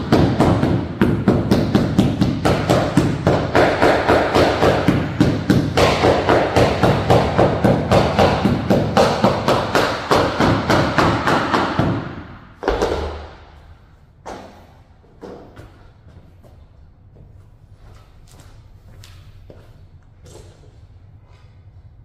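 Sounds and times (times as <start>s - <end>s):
hammer tapping rubber strip: 0.0s - 13.1s.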